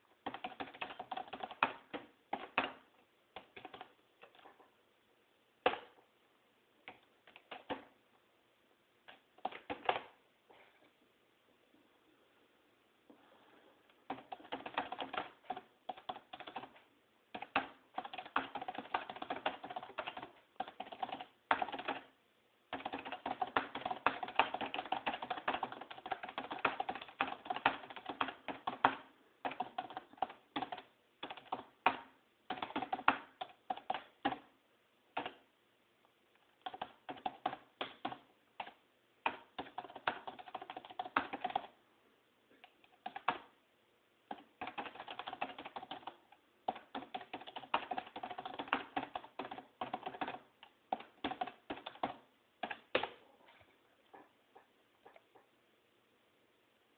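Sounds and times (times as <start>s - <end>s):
fast keyboard typing: 0.2s - 4.6s, 6.9s - 7.9s, 9.4s - 10.2s, 14.0s - 34.5s, 35.2s - 35.4s, 36.6s - 41.8s, 42.6s - 43.6s, 44.3s - 53.1s.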